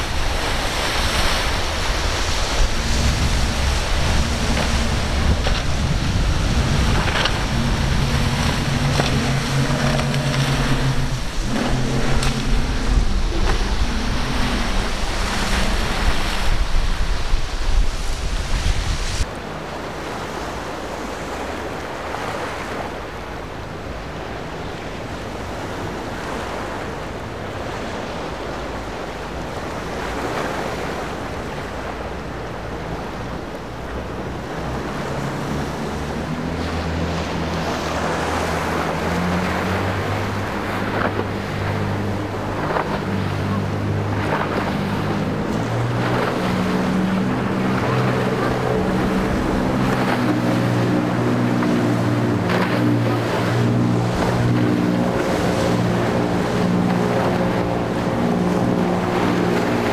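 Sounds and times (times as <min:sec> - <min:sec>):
diesel boat engines droning: 0:00.0 - 0:17.8, 0:19.2 - 0:59.9
wind on the microphone: 0:00.0 - 0:19.3
outboard motors running: 0:00.0 - 0:59.9
water wash: 0:00.0 - 0:59.9.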